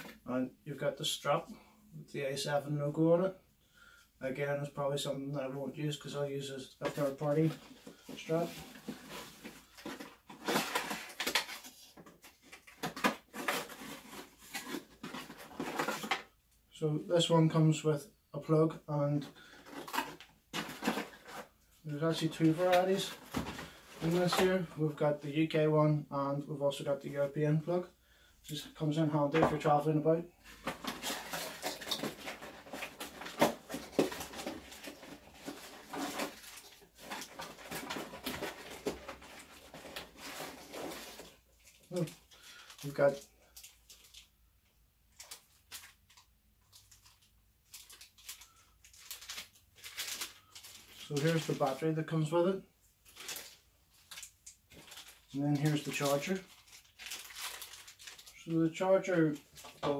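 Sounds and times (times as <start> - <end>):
cardboard packaging rustling: 6.8 - 16.4, 19.2 - 24.7, 29.2 - 44.3, 45.1 - 52.2, 53.0 - 59.9.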